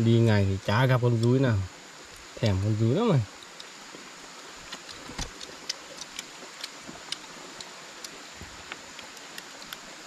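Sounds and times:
steady hiss: 0:00.0 - 0:10.0
small clicks and crackles: 0:03.3 - 0:10.0.

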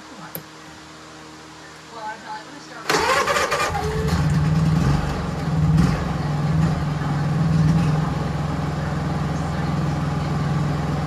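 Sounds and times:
generator engine running: 0:02.8 - 0:11.0.

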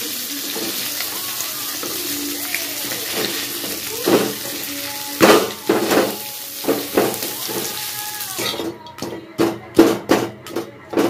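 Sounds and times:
fish sizzling in hot oil: 0:00.0 - 0:08.8
metal spatula scraping wok: 0:01.7 - 0:09.1.

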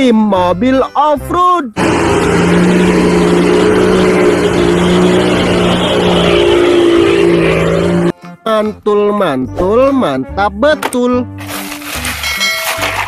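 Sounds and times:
suv engine running under load: 0:01.8 - 0:08.1
tyres driving through deep mud: 0:01.8 - 0:08.1.

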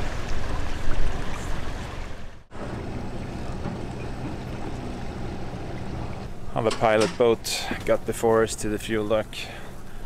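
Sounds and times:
water noise: 0:00.0 - 0:10.0
diesel engine running: 0:02.5 - 0:06.5.

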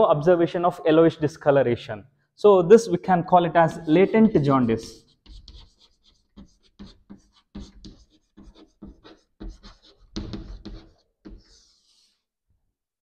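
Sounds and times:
chalk writing on blackboard: 0:04.7 - 0:12.3.

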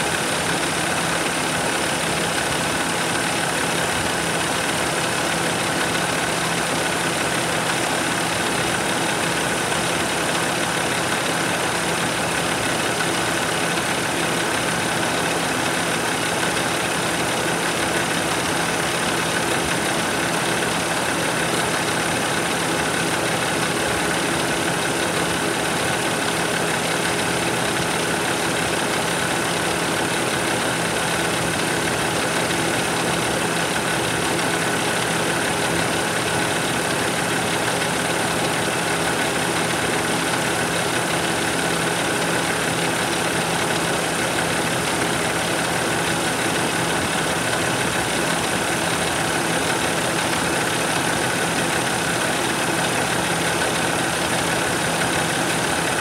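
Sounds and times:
diesel engine idling: 0:00.1 - 0:56.0.

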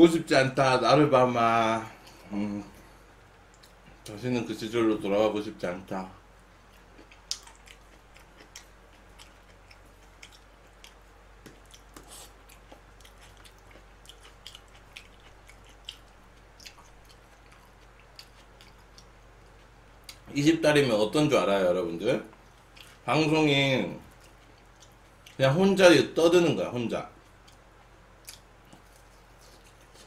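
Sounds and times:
man chewing: 0:02.0 - 0:04.1, 0:06.5 - 0:20.3, 0:22.3 - 0:23.0, 0:24.0 - 0:25.4, 0:27.2 - 0:30.0.

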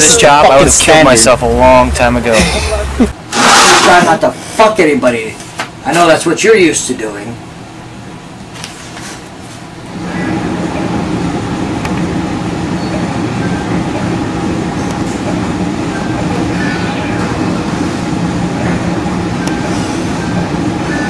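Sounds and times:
engine running steadily: 0:00.0 - 0:03.2
constant low hum: 0:00.0 - 0:21.0.

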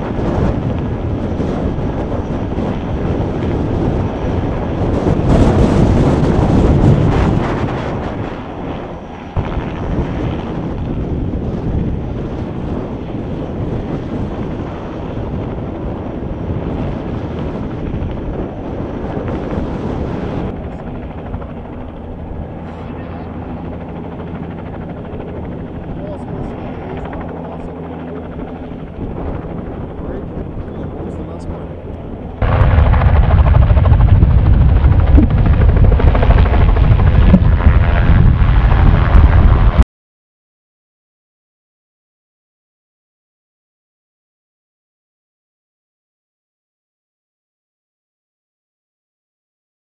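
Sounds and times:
helicopter flying low: 0:00.0 - 0:39.8.

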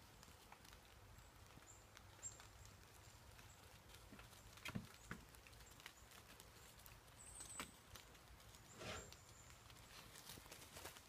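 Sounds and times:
footsteps on dry leaves: 0:00.0 - 0:11.0.

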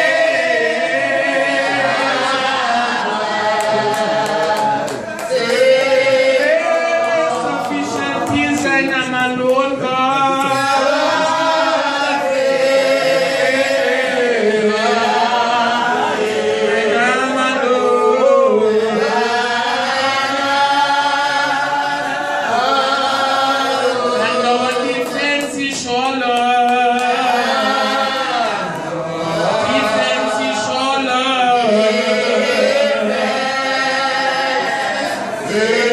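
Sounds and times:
man singing into a microphone: 0:06.4 - 0:11.0, 0:24.0 - 0:34.7.

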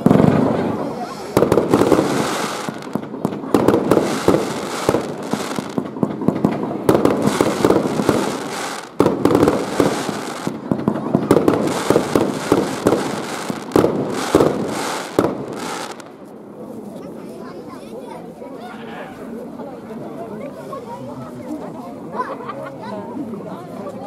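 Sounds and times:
fireworks bursting: 0:00.0 - 0:16.2
crackling sparks: 0:01.4 - 0:16.2.

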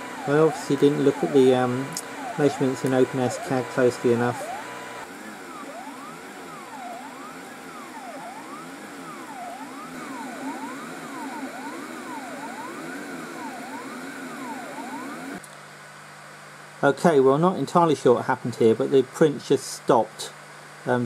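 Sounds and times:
stepper motors whining: 0:00.0 - 0:15.4.

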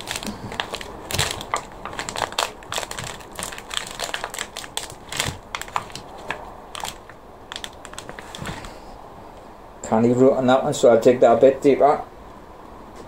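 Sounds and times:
plastic tray crinkling: 0:00.0 - 0:08.7.

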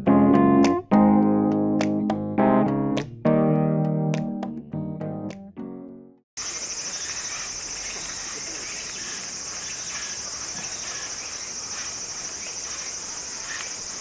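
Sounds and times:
insects buzzing: 0:06.4 - 0:14.0.

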